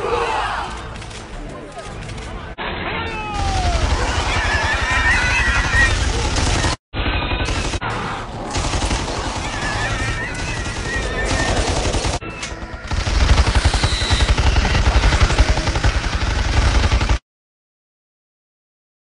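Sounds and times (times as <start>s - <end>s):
movie score music: 0.0s - 17.2s
rapid automatic gunfire: 3.4s - 17.2s.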